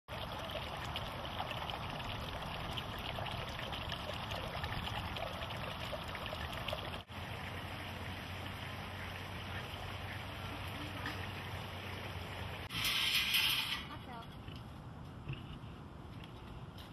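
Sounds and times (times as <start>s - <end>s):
outdoor background hiss: 6.0s - 16.9s.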